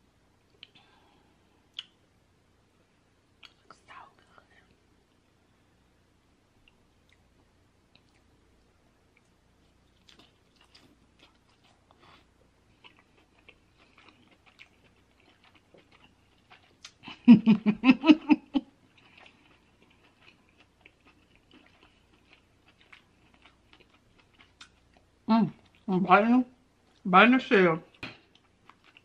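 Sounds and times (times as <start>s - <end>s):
wet chewing sounds: 7.9s - 17.2s, 18.6s - 25.9s, 27.9s - 29.0s.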